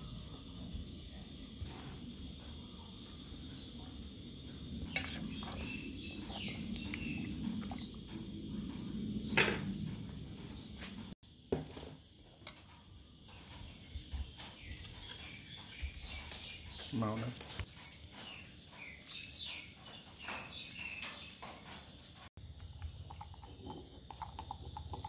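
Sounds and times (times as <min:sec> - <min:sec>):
soup bubbling in pot: 0:22.4 - 0:25.0.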